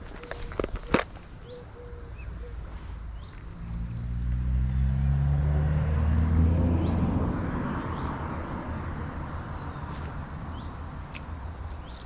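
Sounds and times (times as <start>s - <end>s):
vehicle engine passing by: 2.5s - 10.9s.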